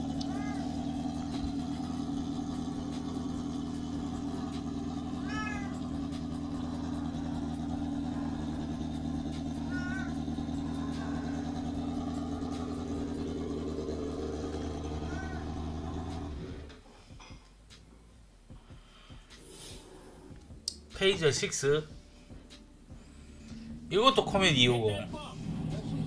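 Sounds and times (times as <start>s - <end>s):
cat meowing: 0.0s - 1.2s, 5.0s - 6.1s, 8.0s - 11.8s, 14.4s - 16.1s
motorcycle engine running: 0.0s - 17.3s, 18.5s - 26.0s.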